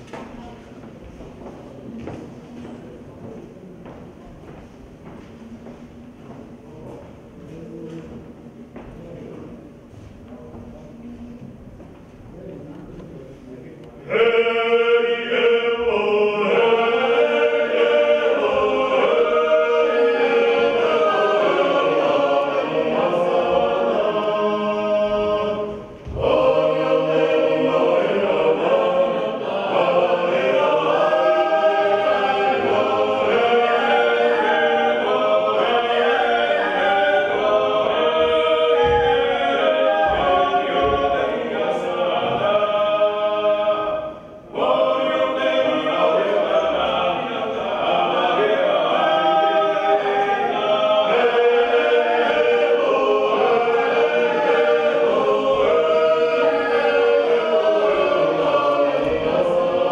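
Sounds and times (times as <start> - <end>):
unaccompanied choir singing: 0.0 - 1.4, 13.9 - 59.9.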